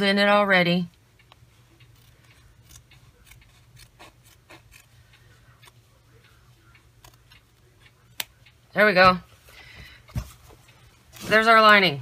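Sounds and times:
scissors snipping fabric: 1.8 - 4.9, 6.9 - 7.4.

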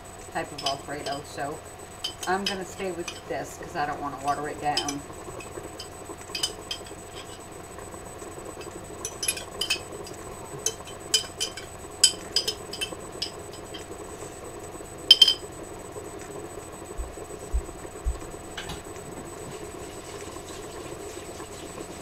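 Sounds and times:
steady low hum: 0.0 - 22.0
glass jar clinking: 2.0 - 3.2, 4.3 - 5.0, 5.8 - 7.4, 9.0 - 9.9, 10.6 - 13.8, 15.1 - 15.4.

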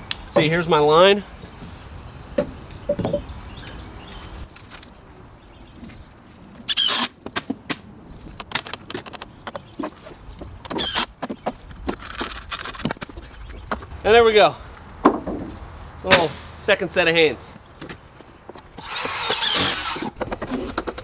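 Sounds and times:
wood and tool knocks: 15.0 - 15.6
power driver driving screws: 18.8 - 20.2.

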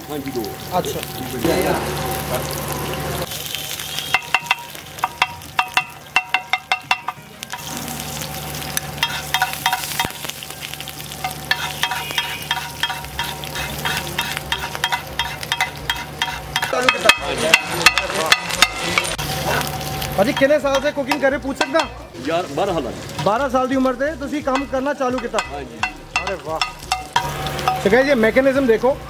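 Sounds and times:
meat sizzling on griddle: 0.0 - 29.0
metal spatulas clinking and scraping: 9.0 - 10.2, 11.2 - 19.2, 20.3 - 22.0, 24.5 - 27.9.

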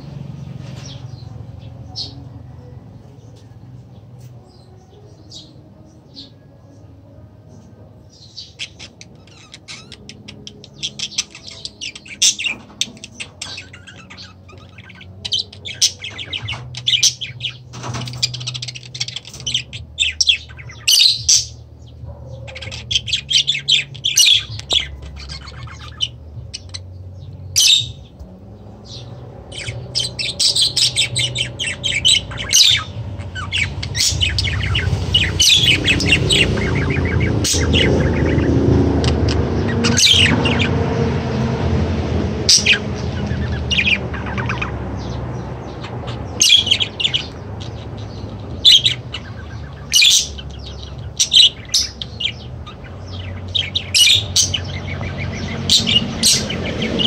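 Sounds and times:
parrots chirping and squawking: 7.8 - 57.0
low rumble: 24.4 - 57.0.

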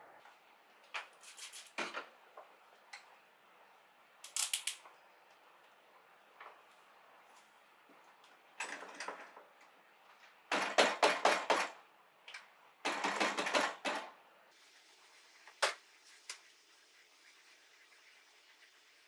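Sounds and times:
faint steady hiss: 14.4 - 19.0.

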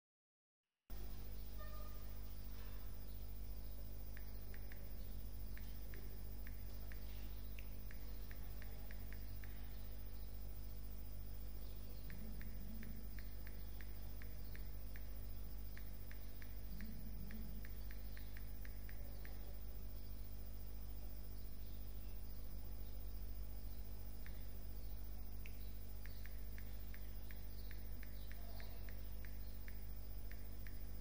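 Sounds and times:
steady low hum: 0.9 - 31.0.

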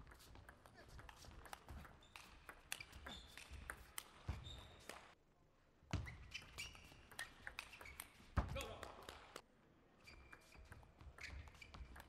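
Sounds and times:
shoes squeaking on floor: 0.1 - 5.2, 5.9 - 8.8, 10.0 - 12.0.

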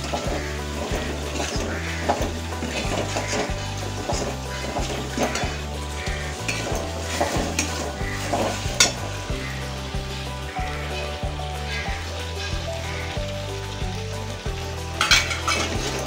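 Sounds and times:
metal spatula scraping a pan: 0.0 - 10.0, 15.0 - 16.0
food sizzling in a pan: 0.0 - 16.0.

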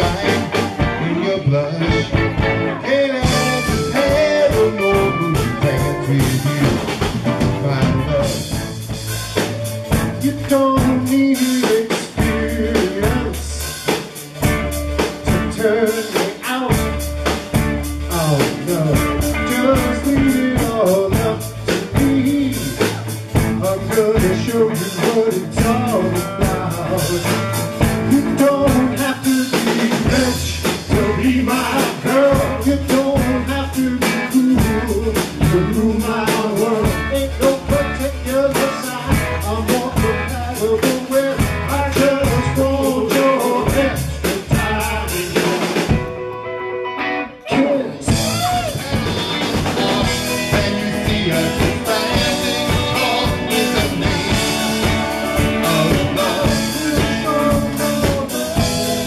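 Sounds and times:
blues-rock band playing: 0.0 - 59.0
drum hits: 1.9 - 13.3, 48.1 - 59.0.

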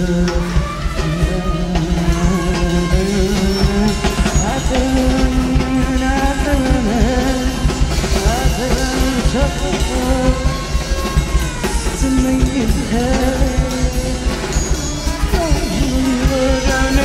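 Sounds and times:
drum kit: 0.0 - 17.0
electronics: 0.0 - 17.0
wavering melody line: 0.0 - 17.0.

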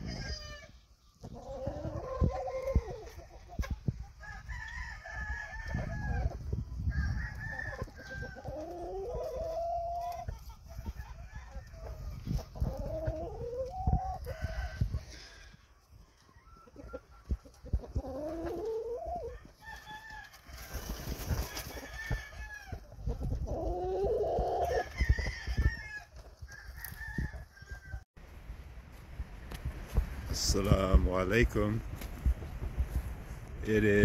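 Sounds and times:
chickens clucking: 0.0 - 4.2, 7.6 - 19.6, 22.7 - 24.8
roosters crowing: 0.0 - 28.0
wind buffeting microphone: 1.7 - 8.6, 10.6 - 15.6, 21.2 - 34.0.

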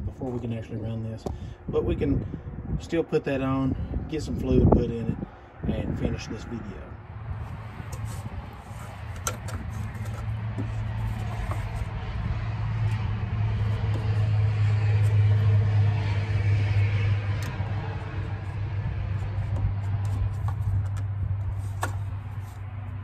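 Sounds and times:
vehicle engine humming: 6.5 - 23.0.

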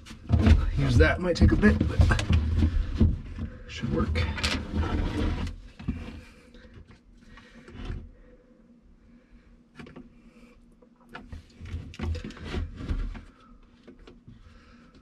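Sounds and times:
plastic jug handling: 0.0 - 6.0.

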